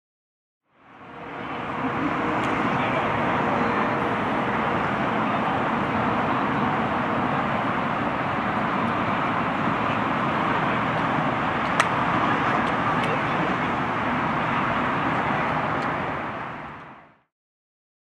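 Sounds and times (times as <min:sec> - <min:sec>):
road traffic noise: 0:00.6 - 0:17.3.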